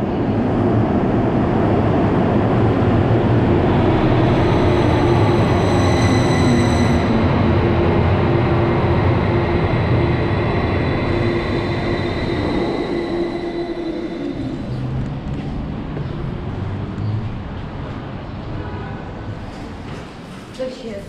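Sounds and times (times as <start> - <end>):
tram wheels rumbling on rail: 0.0 - 20.5
electric whine: 3.8 - 15.2.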